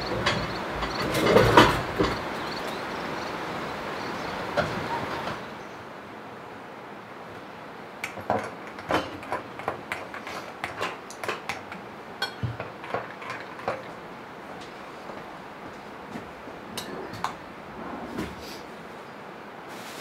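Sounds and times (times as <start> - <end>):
cutlery clinking against cups: 8.4 - 13.9.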